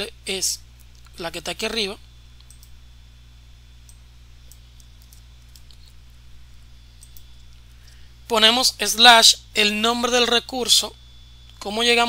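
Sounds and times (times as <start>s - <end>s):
low steady hum: 0.0s - 12.0s
computer keyboard and mouse clicks: 2.4s - 2.7s.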